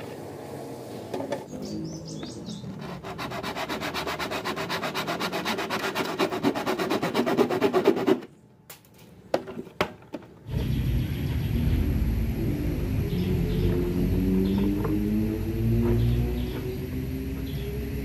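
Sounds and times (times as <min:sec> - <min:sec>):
saw rasping through plastic bottle: 0:02.7 - 0:08.3.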